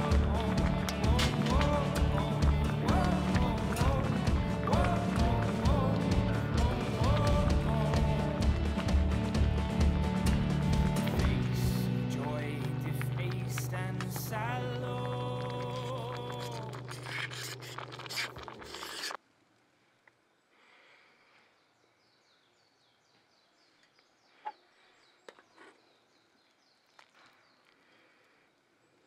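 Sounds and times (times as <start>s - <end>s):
background music: 0.0s - 17.1s.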